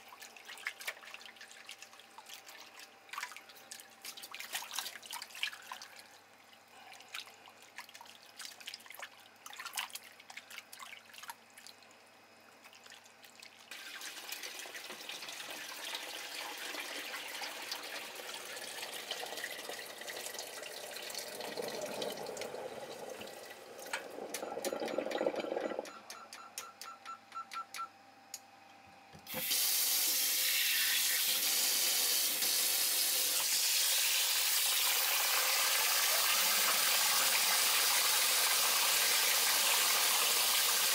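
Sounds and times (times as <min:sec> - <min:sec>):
water sloshing in a metal bowl: 0:00.0 - 0:06.2, 0:06.8 - 0:11.9, 0:12.6 - 0:13.7.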